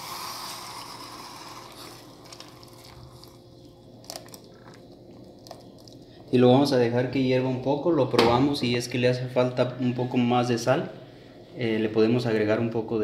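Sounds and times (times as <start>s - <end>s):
sauce pouring hiss: 0.0s - 2.6s.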